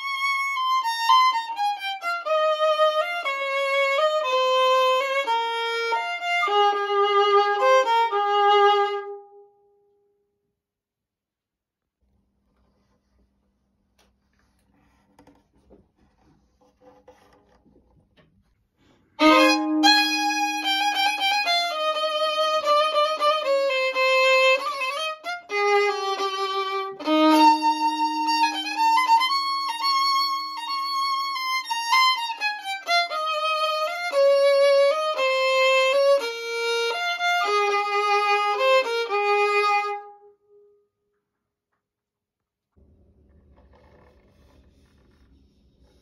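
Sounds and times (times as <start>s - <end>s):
violin slow melody: 0.0s - 9.5s, 19.1s - 40.7s.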